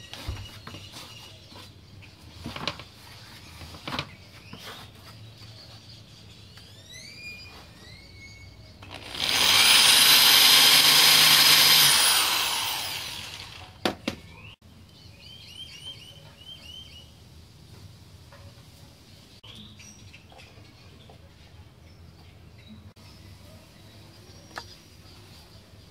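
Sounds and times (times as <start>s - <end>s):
faint birds chirping: 0.0s - 9.0s, 13.5s - 25.9s
electric drill cutting plastic: 8.8s - 13.8s.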